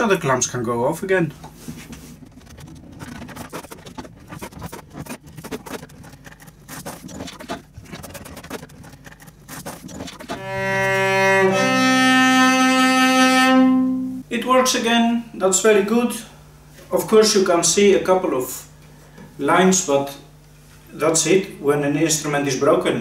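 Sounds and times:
bowed cello notes: 0:10.4 - 0:14.2.

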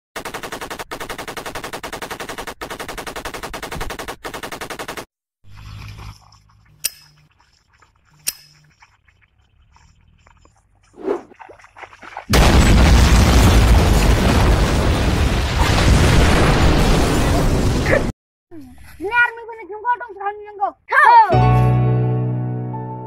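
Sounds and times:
machine-gun fire: 0:00.2 - 0:05.1.

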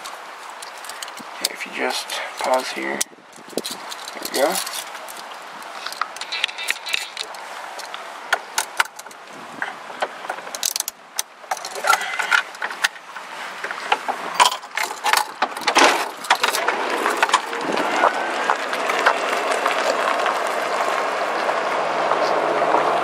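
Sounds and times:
metal handcuffs ratcheting: 0:03.5 - 0:05.2, 0:05.8 - 0:08.0
golf cart pulling away: 0:16.2 - 0:23.0.

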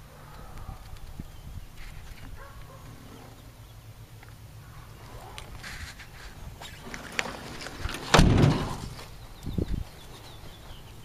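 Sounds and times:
loud thump: 0:08.1 - 0:08.9.

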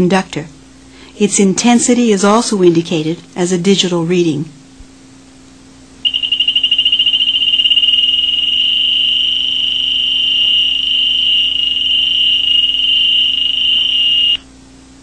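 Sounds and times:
high-pitched buzzer tone: 0:06.0 - 0:14.4.

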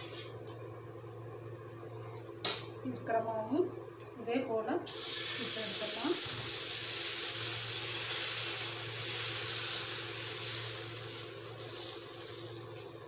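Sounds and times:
steady low hum: 0:00.0 - 0:13.0
batter sizzling on hot iron: 0:04.9 - 0:13.0.

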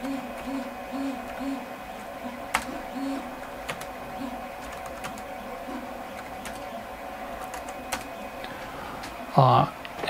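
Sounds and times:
faint electrical hum: 0:00.0 - 0:10.0
keyboard keys clicking: 0:02.5 - 0:02.8, 0:03.6 - 0:03.9, 0:04.6 - 0:05.3, 0:06.2 - 0:06.7, 0:07.4 - 0:08.1.

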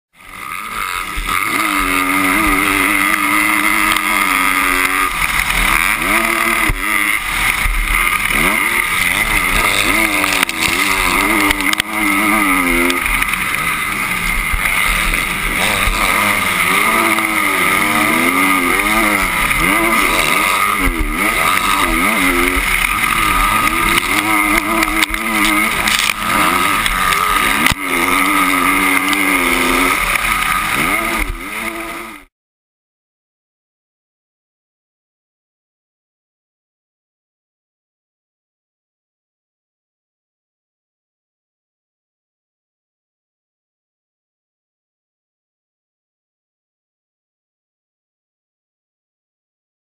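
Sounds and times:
motorcycle engine revving: 0:00.2 - 0:32.3
steady rushing noise: 0:01.2 - 0:32.0.

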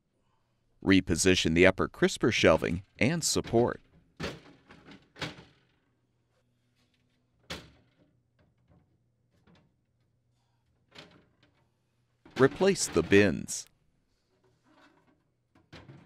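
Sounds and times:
glass shelf knocks and clatters: 0:15.6 - 0:16.0.

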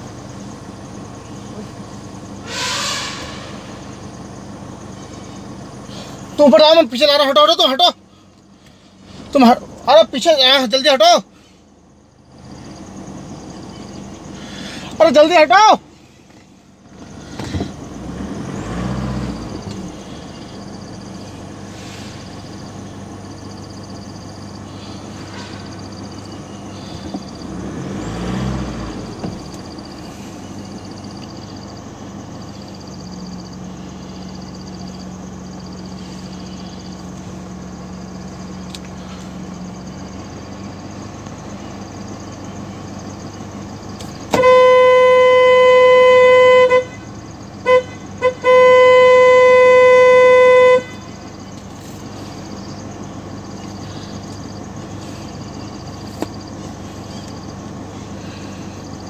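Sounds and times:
vehicle engine running: 0:00.0 - 0:59.0
car horn: 0:02.4 - 0:04.0, 0:44.2 - 0:51.4.

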